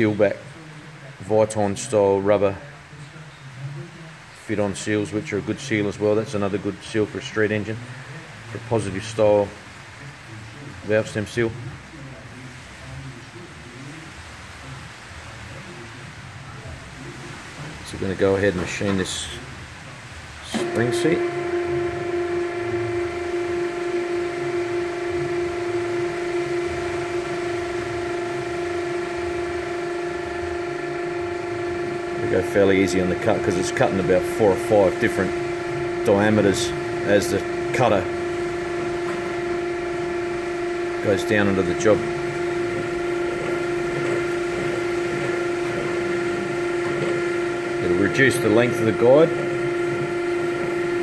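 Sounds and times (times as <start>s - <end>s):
machining spindle whining: 0.0s - 0.6s, 20.4s - 51.0s.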